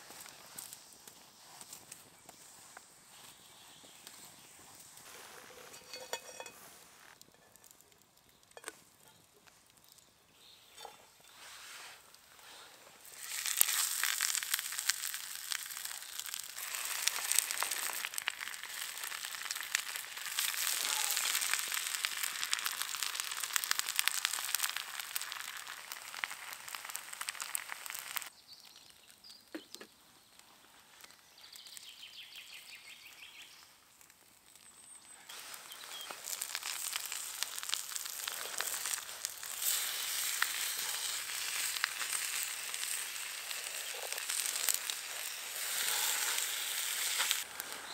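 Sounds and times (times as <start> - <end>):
food sizzling in hot pan: 11.2 - 28.3, 35.3 - 47.9.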